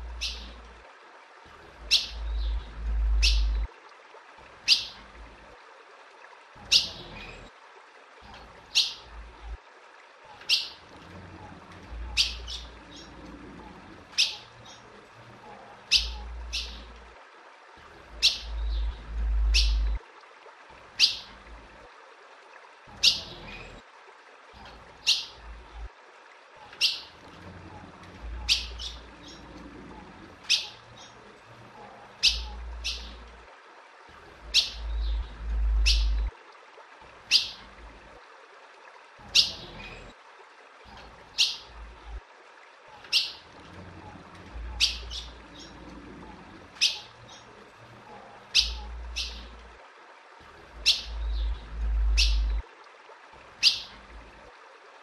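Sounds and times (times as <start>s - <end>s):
low rumbling noise: 1.7s - 3.7s, 18.1s - 20.0s, 34.3s - 36.3s, 50.6s - 52.6s.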